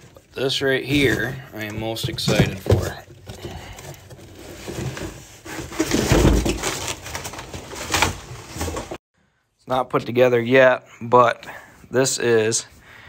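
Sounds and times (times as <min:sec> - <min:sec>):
shrink-wrap crinkling: 0:03.4 - 0:09.0.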